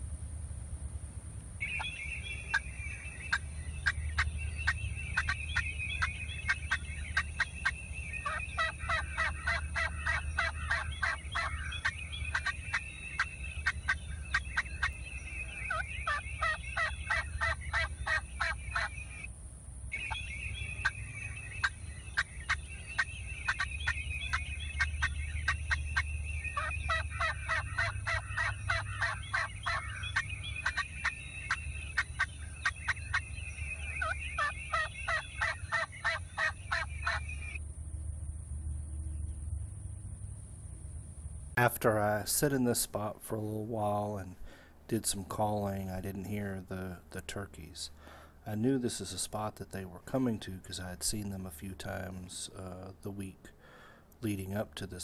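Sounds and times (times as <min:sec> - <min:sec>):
wild turkey yelping: 0:01.6 - 0:19.3, 0:19.9 - 0:37.6.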